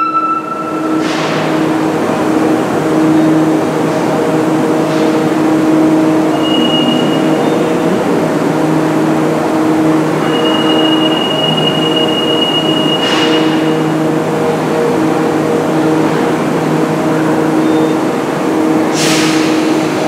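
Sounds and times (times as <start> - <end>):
high steady tone: 0.0 - 1.0
train equipment humming: 0.0 - 20.0
air hiss: 19.0 - 20.0.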